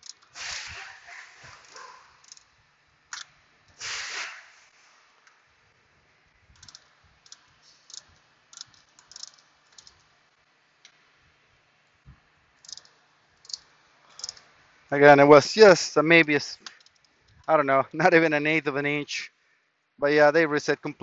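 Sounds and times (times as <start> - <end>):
metal tool clicking on caliper: 1.7 - 2.5, 6.6 - 10.0, 12.6 - 14.4.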